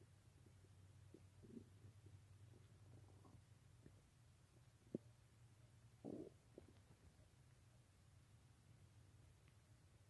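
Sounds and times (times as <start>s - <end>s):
stomach gurgling: 0.4s - 4.0s, 4.8s - 5.1s, 6.0s - 7.2s.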